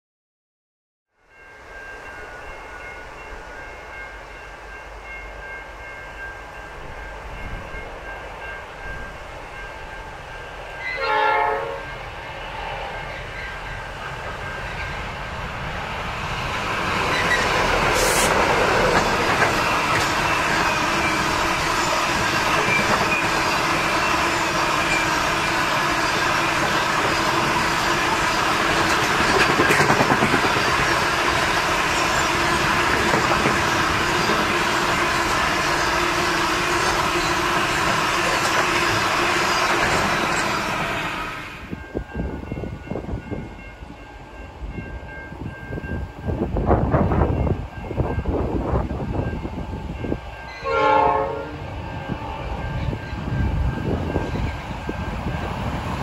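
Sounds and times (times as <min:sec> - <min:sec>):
diesel locomotive engines: 0:01.3 - 0:56.0
train horn blast: 0:10.8 - 0:12.0, 0:18.0 - 0:18.4, 0:50.6 - 0:51.8.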